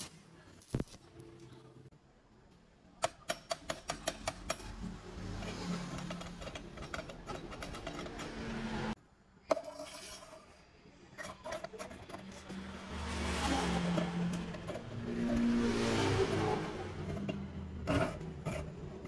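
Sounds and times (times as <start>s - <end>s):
threaded screw scraping: 3.9s - 8.6s.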